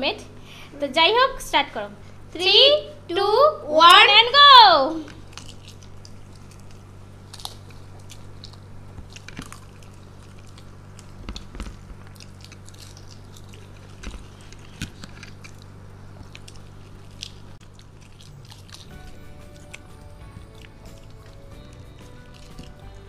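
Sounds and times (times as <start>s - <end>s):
steady low hum: 0.0s - 23.0s
people chewing wet food: 5.1s - 23.0s
sharp crunchy clicks: 5.1s - 23.0s.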